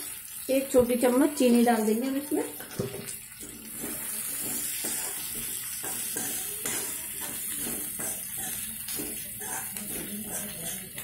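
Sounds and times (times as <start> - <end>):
pan sizzling: 0.0 - 11.0
spoon scraping metal pan: 2.4 - 11.0.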